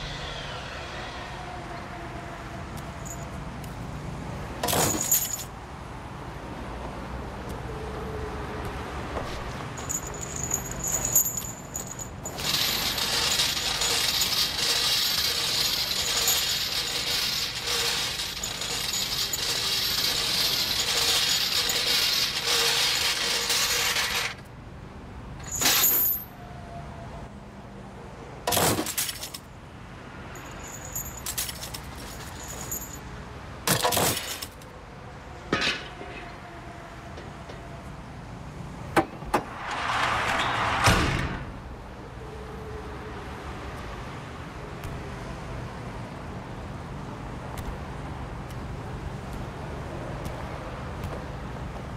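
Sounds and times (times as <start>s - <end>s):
chain rattling: 4.6s - 5.5s, 9.8s - 24.3s, 30.4s - 33.0s.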